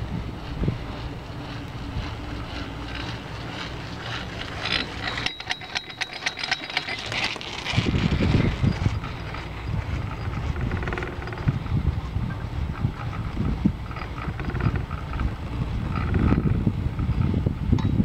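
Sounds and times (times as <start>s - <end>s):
thin whine: 0.0s - 18.0s
wind on microphone: 0.0s - 18.0s
rapid metallic clicks: 1.0s - 11.7s.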